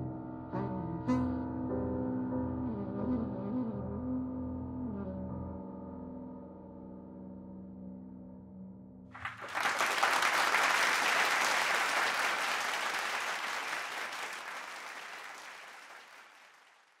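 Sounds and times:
piano and saxophone chord: 0.0 - 6.1
audience applause: 9.2 - 17.0.

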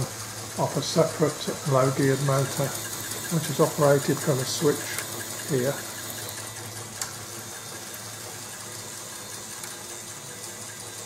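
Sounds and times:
small electric motor running: 0.0 - 11.0.

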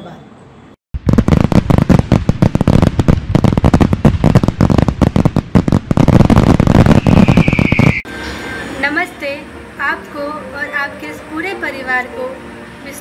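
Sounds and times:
firecrackers crackling: 1.0 - 8.1
falling whistle: 6.9 - 8.7.

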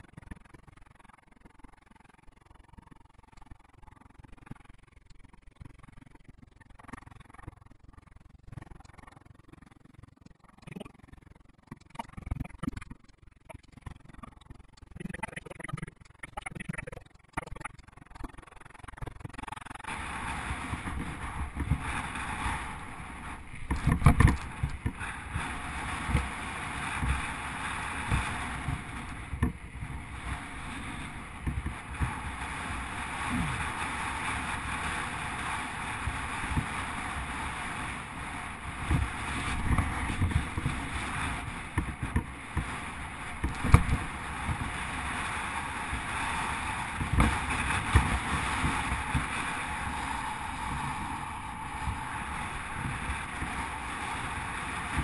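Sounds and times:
wind on microphone: 13.6 - 55.0
bicycle tyres hissing on tarmac: 19.8 - 55.0.

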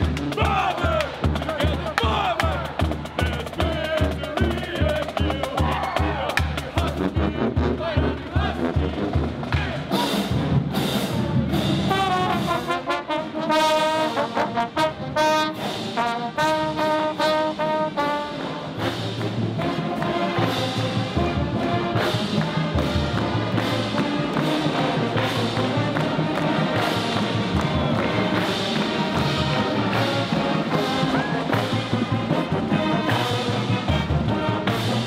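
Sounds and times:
drumline with cymbals: 0.0 - 35.0
marching band brass: 0.0 - 35.0.

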